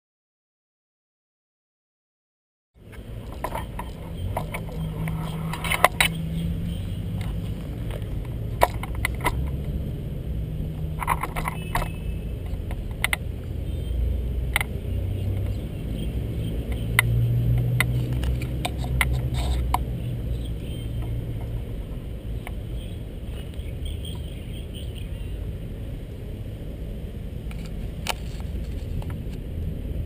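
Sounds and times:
steady low rumble: 0:02.8 - 0:30.0
sharp clicks and taps: 0:07.2 - 0:09.6, 0:10.8 - 0:13.3, 0:16.6 - 0:19.9.

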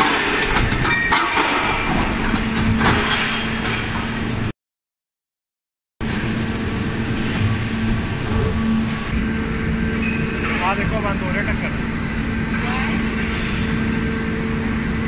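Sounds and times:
hydraulic hum: 0:06.0 - 0:15.0.

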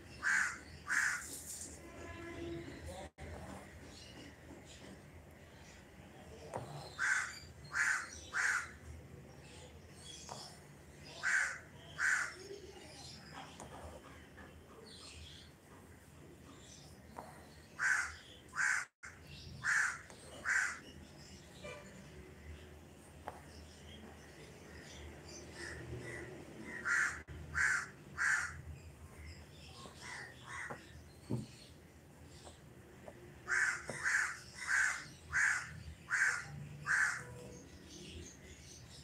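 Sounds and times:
crow cawing: 0:00.2 - 0:01.2, 0:07.0 - 0:08.8, 0:11.2 - 0:12.4, 0:17.8 - 0:18.9, 0:19.6 - 0:20.8, 0:25.6 - 0:28.6, 0:33.5 - 0:37.3.

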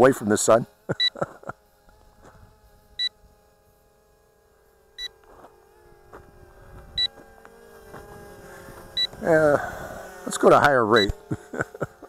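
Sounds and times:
drone motors humming: 0:00.0 - 0:12.0.

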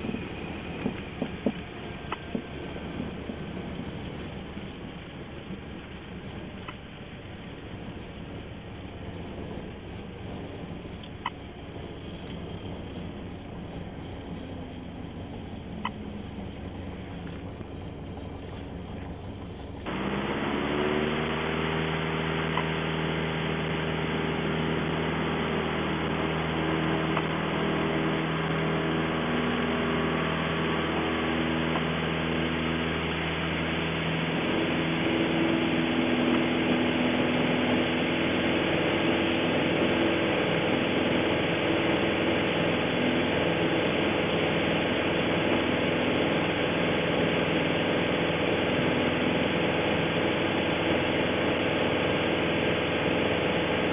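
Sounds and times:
aircraft engine: 0:00.0 - 0:53.9
faint clicks: 0:06.2 - 0:09.2, 0:10.9 - 0:19.9.

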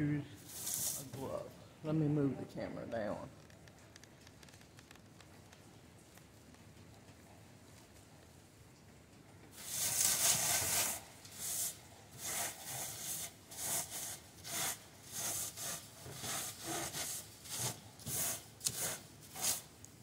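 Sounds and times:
seed pods scratching on wire mesh: 0:00.5 - 0:01.2, 0:09.6 - 0:19.7.

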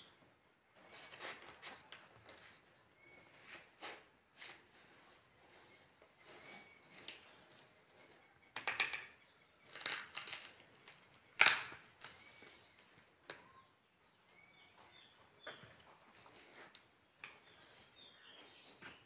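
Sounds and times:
watermelon crunching and cracking: 0:09.7 - 0:12.3.

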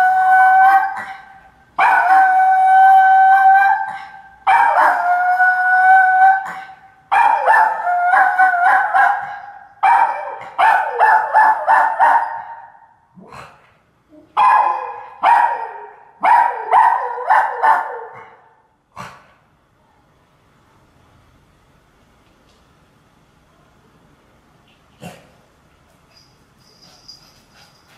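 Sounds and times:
dog howling and yelping: 0:00.0 - 0:01.2, 0:01.8 - 0:06.6, 0:07.2 - 0:09.3.

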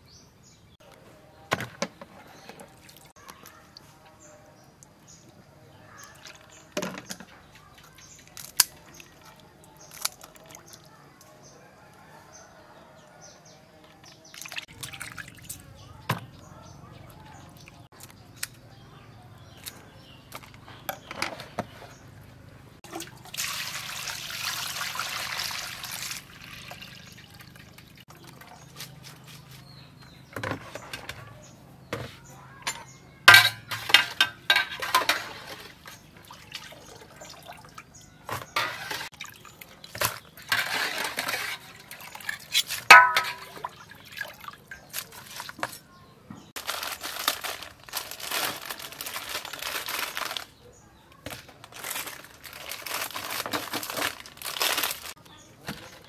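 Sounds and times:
water pouring and splashing: 0:02.5 - 0:03.5, 0:14.1 - 0:16.2, 0:22.8 - 0:29.0, 0:33.3 - 0:45.8
plastic baskets clattering: 0:19.5 - 0:22.2, 0:30.2 - 0:36.1, 0:39.8 - 0:43.8, 0:44.8 - 0:56.0.

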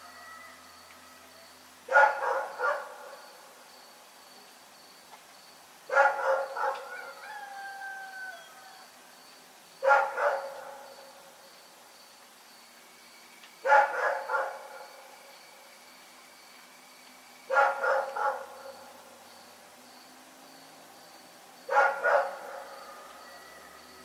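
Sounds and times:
dog barking: 0:01.9 - 0:03.2, 0:05.9 - 0:07.2, 0:09.8 - 0:10.9, 0:13.6 - 0:14.9, 0:17.5 - 0:18.8, 0:21.7 - 0:23.2.

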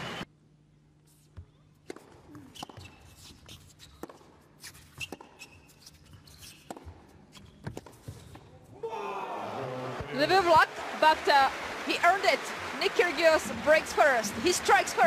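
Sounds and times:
shoes squeaking on court: 0:01.1 - 0:08.5
tennis racket hitting ball: 0:01.8 - 0:05.4, 0:06.6 - 0:08.4
tennis ball bouncing: 0:01.8 - 0:05.5, 0:06.1 - 0:08.4.

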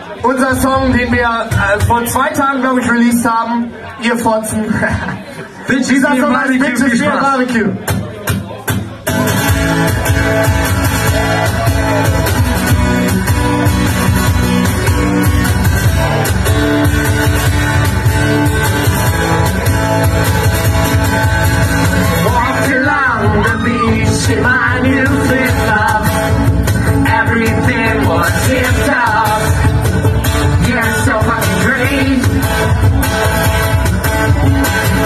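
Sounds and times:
man singing: 0:00.2 - 0:03.5, 0:22.0 - 0:32.8
live rock band playing: 0:05.0 - 0:35.0.

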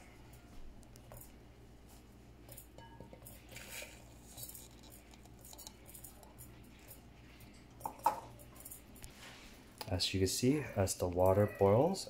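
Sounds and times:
ground coffee pouring: 0:03.4 - 0:06.1.

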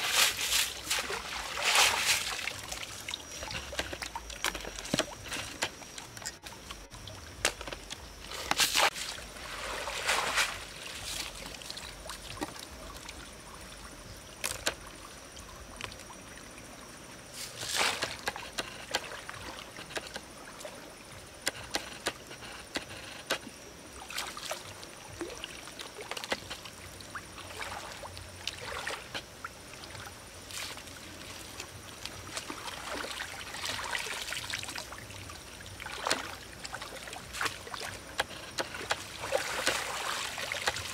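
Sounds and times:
water running through baskets: 0:00.0 - 0:13.2, 0:17.4 - 0:18.3, 0:29.9 - 0:40.9
river water splashing: 0:00.0 - 0:40.9.

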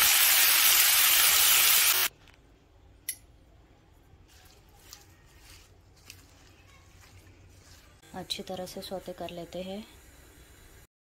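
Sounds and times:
spinach sizzling in hot oil: 0:00.0 - 0:02.1.

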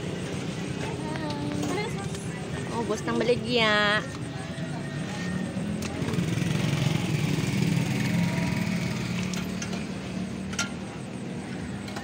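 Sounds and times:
small engine humming: 0:04.5 - 0:12.0.

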